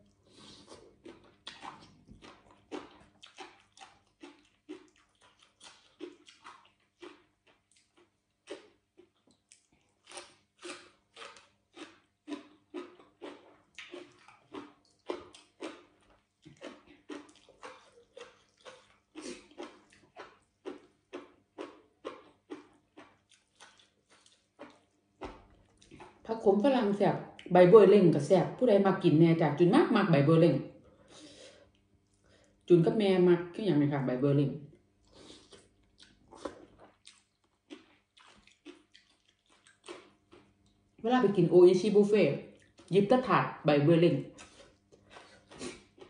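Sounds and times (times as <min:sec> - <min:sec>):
chewing and lip-smacking: 0:00.0 - 0:26.3, 0:35.0 - 0:41.0, 0:42.5 - 0:42.9, 0:44.3 - 0:46.0.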